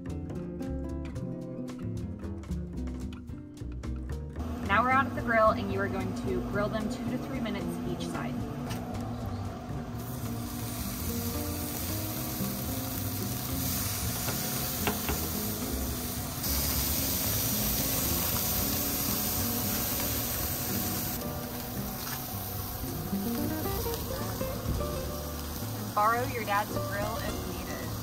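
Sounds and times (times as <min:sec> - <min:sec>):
background music: 0:00.0 - 0:28.0
meat sizzling on grill: 0:10.0 - 0:28.0.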